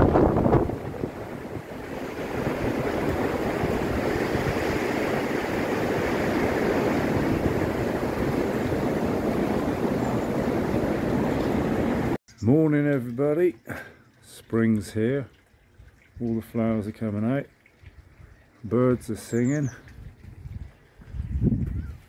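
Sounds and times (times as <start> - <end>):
wind rumble on microphone: 0.0 - 12.2, 17.8 - 22.0
wind rushing through trees: 0.0 - 12.2, 19.3 - 22.0.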